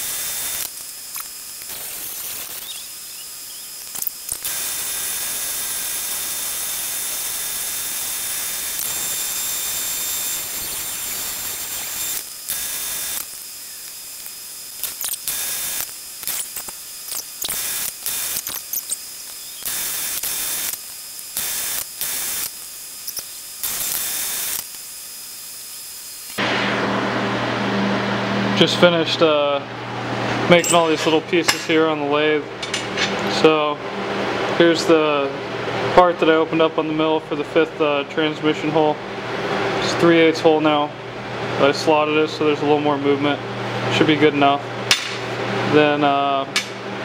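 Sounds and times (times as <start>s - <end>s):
angle grinder cutting steel: 0.0s - 26.4s, 30.5s - 31.8s.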